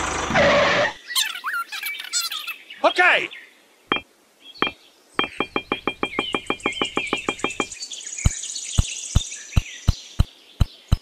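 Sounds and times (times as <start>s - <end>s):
birds chirping: 0.9s - 11.0s
sharp knocks: 4.6s - 8.4s.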